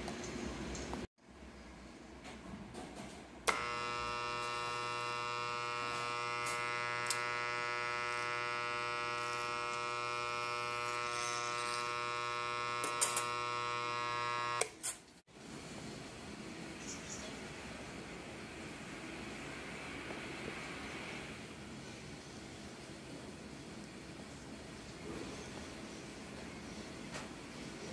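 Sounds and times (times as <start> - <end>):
demagnetizer humming: 3.5 - 14.8.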